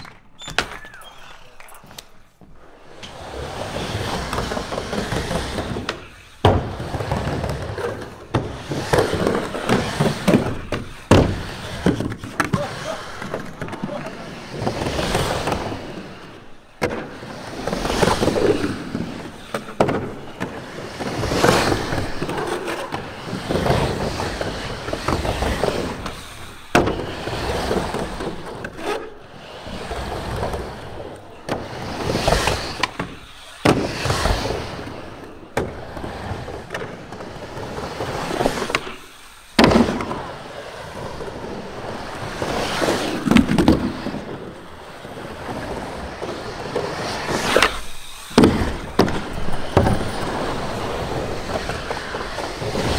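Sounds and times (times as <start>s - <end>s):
skateboard wheels rumbling: 0.0s - 52.9s
skateboard knocks: 4.2s - 16.2s, 43.2s - 52.9s.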